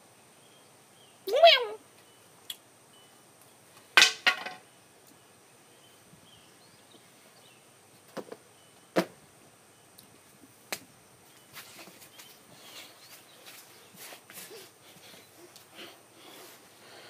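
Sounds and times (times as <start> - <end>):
faint bird chirps: 0.3 - 3.3, 11.2 - 13.9.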